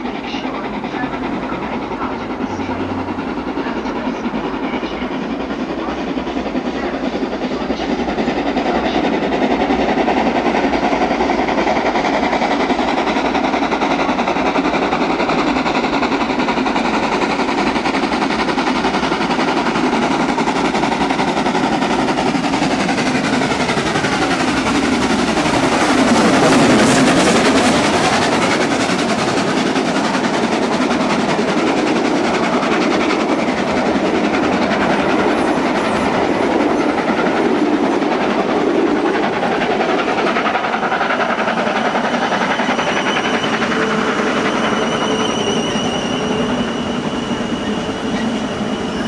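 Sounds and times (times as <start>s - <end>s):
steam locomotive working hard: 0.0s - 49.0s
train noise: 0.0s - 49.0s.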